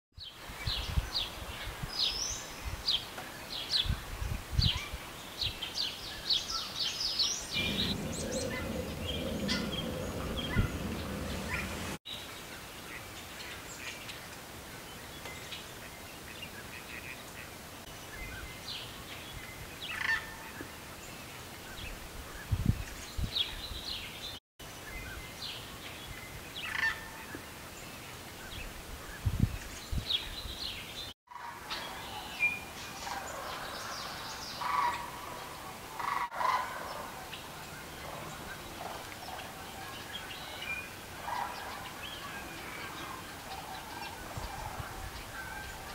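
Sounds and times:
wetland birds calling: 7.3s - 12.0s, 31.7s - 45.9s
low rumble: 7.5s - 12.0s
low thumps: 7.5s - 12.0s.

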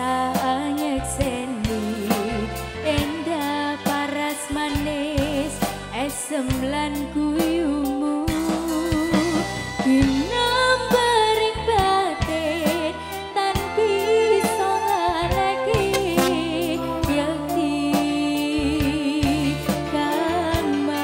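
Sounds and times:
woman singing with vibrato: 9.8s - 21.0s
sustained low bass notes: 15.7s - 17.5s
regular percussive beats: 15.8s - 16.7s.

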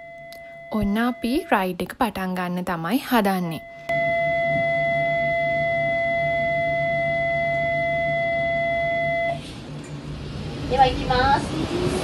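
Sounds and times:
steady pitched tone: 3.4s - 10.3s
low engine hum: 3.9s - 12.0s.

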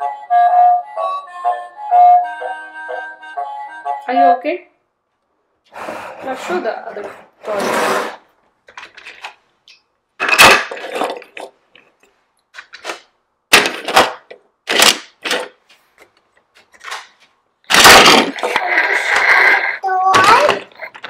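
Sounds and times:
toy cars clattering: 10.2s - 12.0s, 12.6s - 15.6s, 17.7s - 19.4s, 20.0s - 21.0s.

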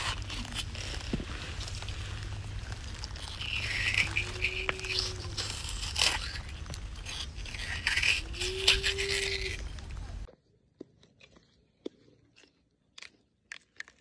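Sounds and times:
scoop scraping beetroot: 0.0s - 10.3s
low squeak of scoop: 2.8s - 9.9s.

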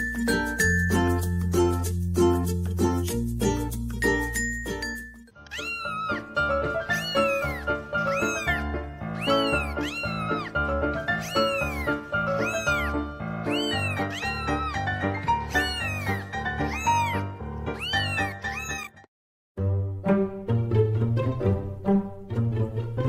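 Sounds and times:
background music: 0.0s - 18.8s, 19.6s - 23.0s
cat meows: 5.4s - 19.1s.

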